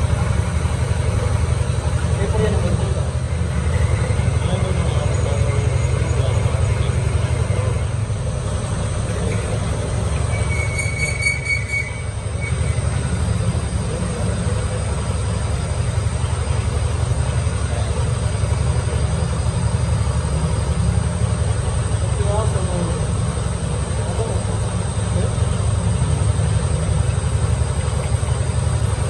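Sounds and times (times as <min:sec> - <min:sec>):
high-pitched squeal: 0:10.2 - 0:13.1.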